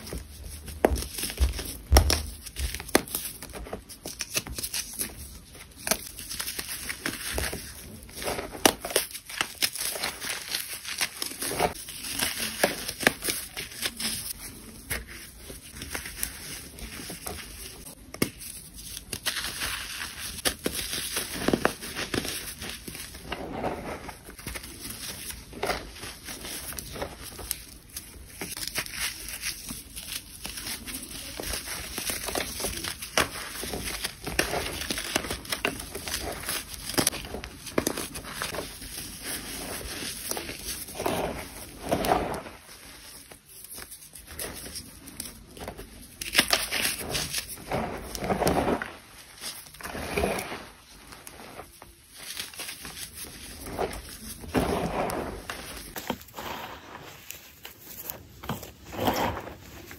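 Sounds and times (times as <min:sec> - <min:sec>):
gritty rustle: 0:18.9 - 0:59.9.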